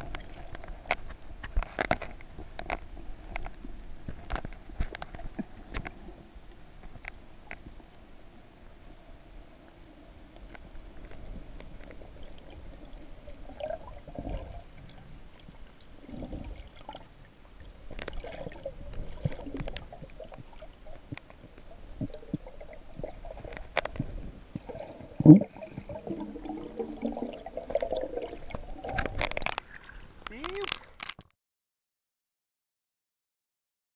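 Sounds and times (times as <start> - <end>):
underwater gurgling and bubbling: 10.8 - 30.3
water splashing: 10.9 - 31.3
small clicks: 28.9 - 31.3.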